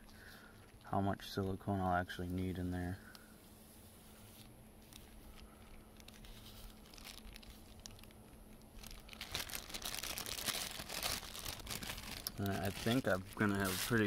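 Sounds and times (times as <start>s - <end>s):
plastic bag crinkling: 4.2s - 14.0s.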